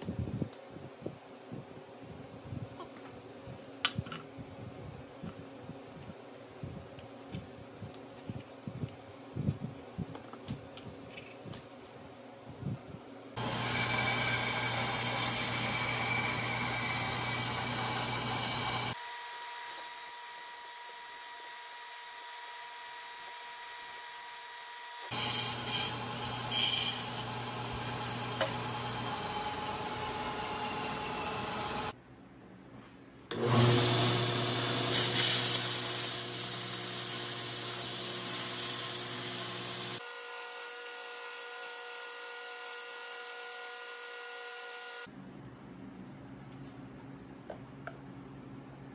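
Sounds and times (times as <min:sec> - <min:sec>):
bandsaw cutting wood: 0:13.4 - 0:19.0, 0:25.0 - 0:31.9, 0:33.3 - 0:40.9
belt grinder sanding wood: 0:13.4 - 0:19.0, 0:25.0 - 0:31.9, 0:33.4 - 0:40.0.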